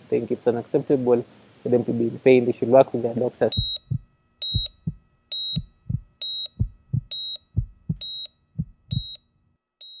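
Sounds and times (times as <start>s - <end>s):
high electronic beep: 3.6s - 4.8s, 8.0s - 8.3s, 8.9s - 9.2s
low heartbeat thumps: 3.6s - 9.2s.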